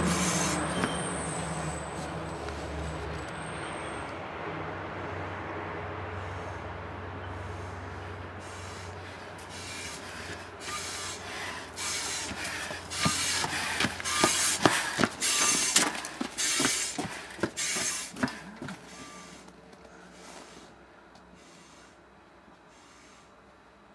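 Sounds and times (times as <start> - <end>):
boot footsteps on snow: 12.1 - 18.4.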